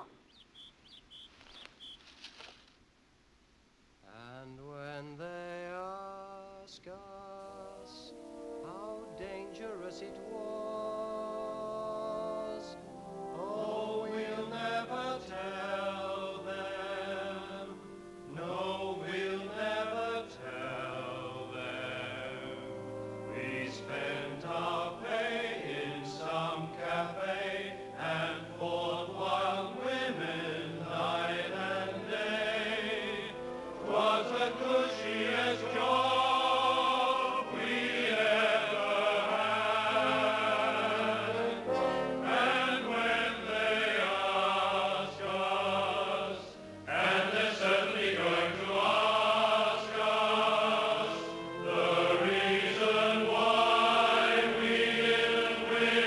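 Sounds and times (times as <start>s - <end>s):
choir singing in harmony: 6.8s - 56.0s
orchestral accompaniment: 15.4s - 56.0s.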